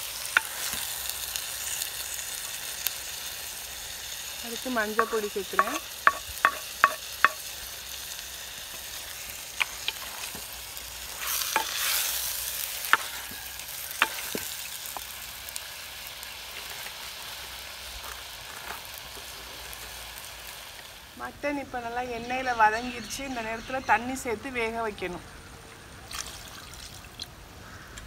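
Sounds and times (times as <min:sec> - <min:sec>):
meat sizzling in hot oil: 0:00.0 - 0:21.3
spoon clinking against pot: 0:05.0 - 0:07.4.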